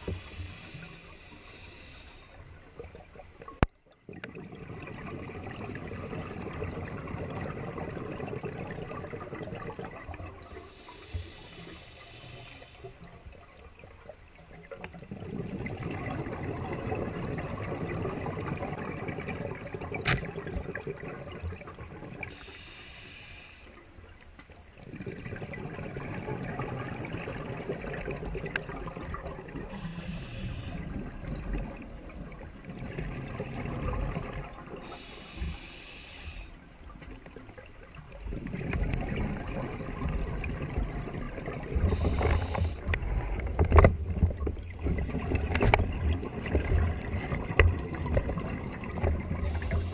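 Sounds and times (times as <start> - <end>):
scuba regulator breathing underwater: 0.0 - 2.5, 10.6 - 13.1, 22.3 - 23.8, 29.6 - 31.1, 34.7 - 36.7, 41.7 - 43.4, 49.3 - 49.9
bubbles rushing on exhalation: 4.1 - 10.7, 14.7 - 22.3, 24.8 - 30.0, 30.7 - 35.0, 37.5 - 49.9.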